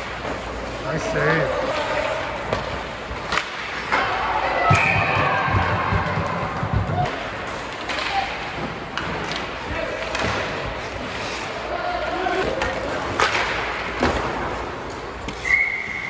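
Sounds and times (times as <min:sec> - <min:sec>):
sticks and puck clacking: 0:00.0 - 0:15.6
skates scraping ice: 0:00.0 - 0:16.0.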